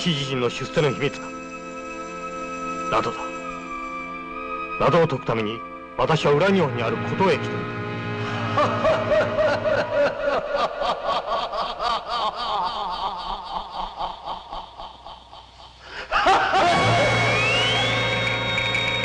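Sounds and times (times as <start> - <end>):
person laughing: 8.3 - 17.6
loud sustained tone: 16.6 - 19.0.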